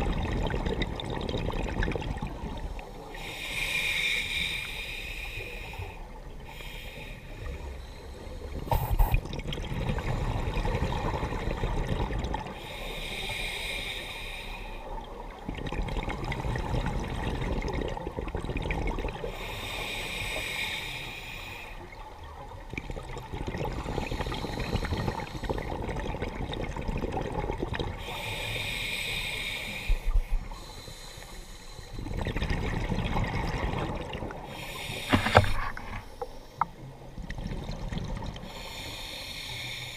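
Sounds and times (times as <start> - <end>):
bubbling exhaled air underwater: 0.0 - 2.8, 8.5 - 13.7, 15.0 - 20.0, 22.2 - 28.5, 32.0 - 36.3
hissing regulator inhale: 3.1 - 9.2, 12.6 - 14.9, 19.3 - 21.8, 24.0 - 25.7, 28.0 - 32.1, 34.5 - 36.7, 38.4 - 39.9.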